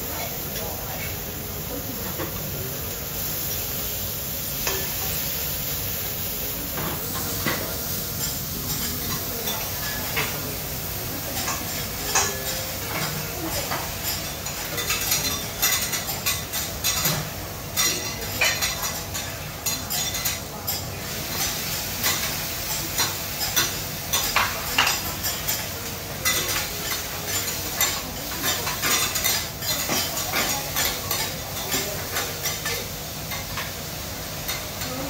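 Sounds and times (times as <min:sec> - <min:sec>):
food sizzling on griddle: 0:00.0 - 0:35.0
metal spatulas scraping and clinking: 0:11.4 - 0:22.4.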